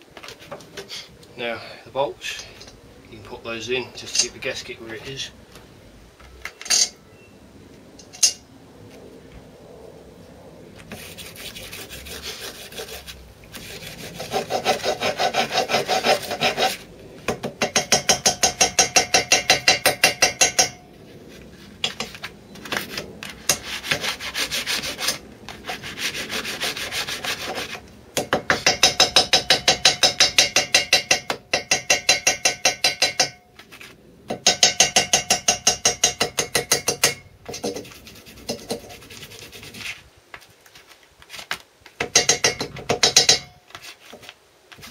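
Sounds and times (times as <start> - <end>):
hammer tapping on metal: 17.3 - 20.8, 28.2 - 33.4, 34.3 - 37.8, 42.0 - 43.6.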